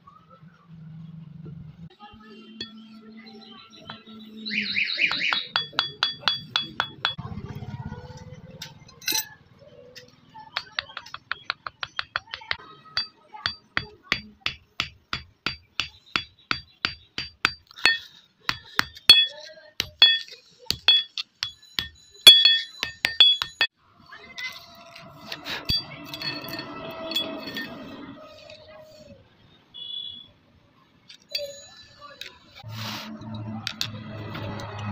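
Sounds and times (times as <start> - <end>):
hammer tapping with metallic ring: 5.1 - 7.2, 10.6 - 23.7.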